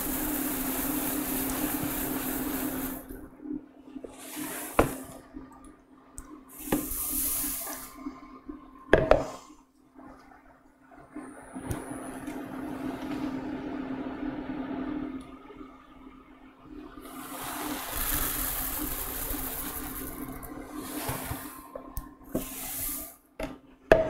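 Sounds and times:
cereal pouring into bowl: 17.1 - 21.3.

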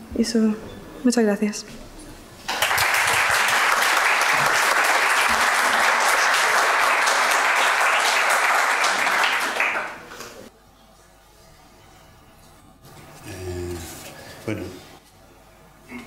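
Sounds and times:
audience applauding: 2.5 - 10.5.

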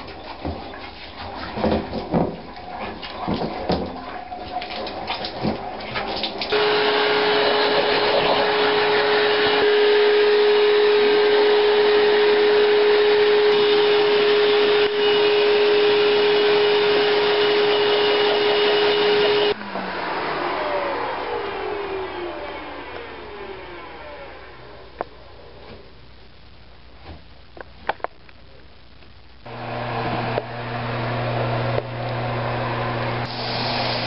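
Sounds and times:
electric motor humming: 6.5 - 19.8
motor winding down: 6.5 - 25.0.

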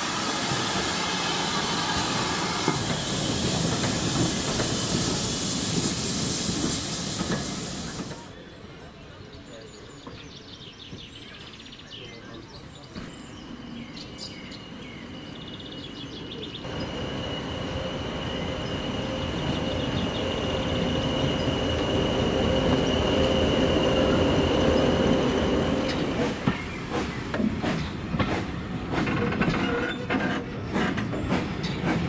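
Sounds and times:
diesel locomotive engine drone: 0.0 - 8.3, 16.4 - 32.0
high steady whistle: 16.7 - 26.0.

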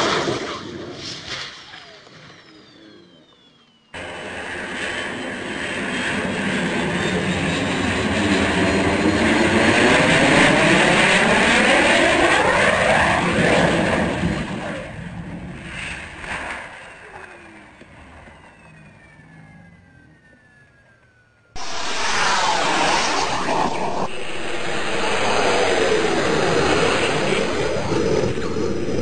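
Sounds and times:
model jet turbine whine: 0.0 - 29.0
faint falling whine: 0.1 - 5.3, 16.8 - 29.0.

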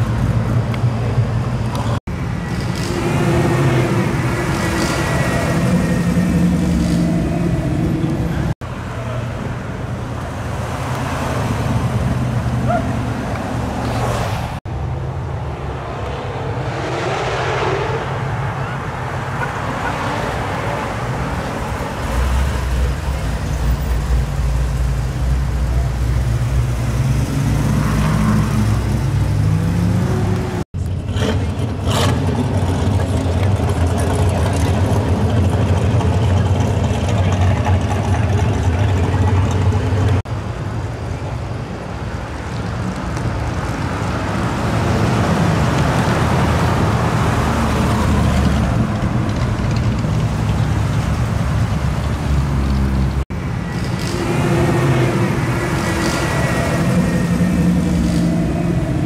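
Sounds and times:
car engines rumbling past: 0.0 - 59.0.

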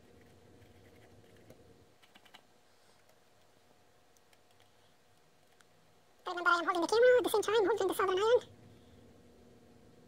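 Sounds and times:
faint hum: 0.0 - 10.0.

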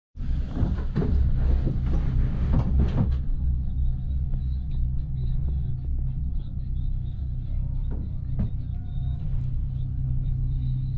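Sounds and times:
cable car low rumble: 0.2 - 10.9
cabin rattling and knocking: 0.5 - 3.3.

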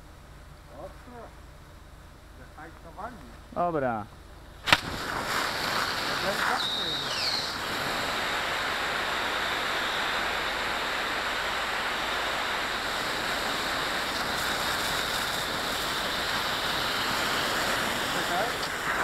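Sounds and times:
hose water spraying: 4.7 - 19.0.

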